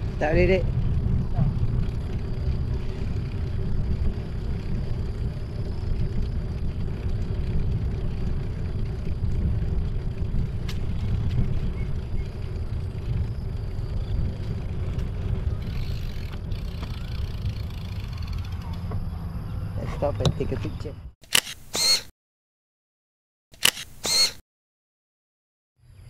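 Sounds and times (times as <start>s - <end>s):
wind on microphone: 0.0s - 20.6s
bicycle tyres on concrete: 0.0s - 20.8s.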